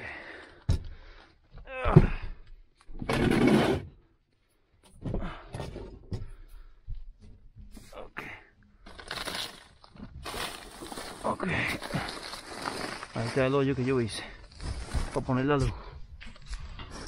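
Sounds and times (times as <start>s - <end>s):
rough breath or rustle: 10.2s - 13.2s.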